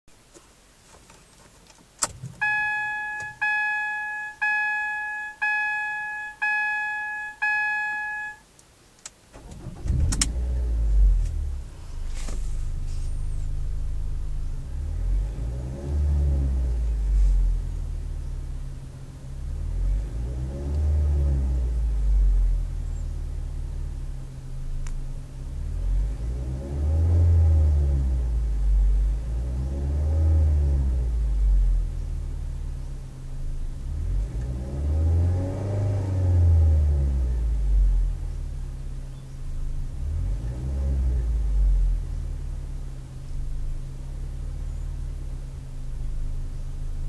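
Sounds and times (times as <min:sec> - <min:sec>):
car engine starting and idling: 0:01.8 - 0:47.0
car dashboard chime: 0:02.4 - 0:08.5
car engine revving: 0:09.4 - 0:38.4, 0:39.7 - 0:47.0.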